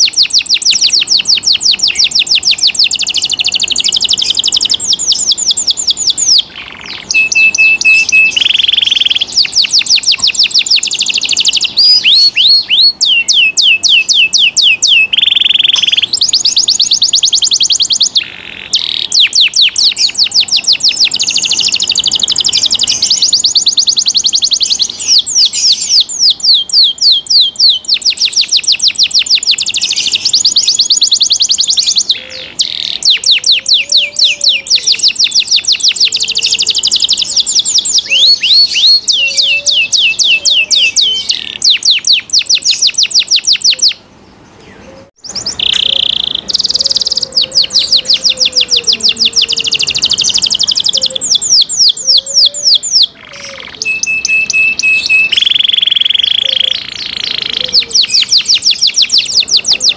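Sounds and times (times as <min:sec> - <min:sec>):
canary singing rapid trills: 0:00.0 - 0:59.9.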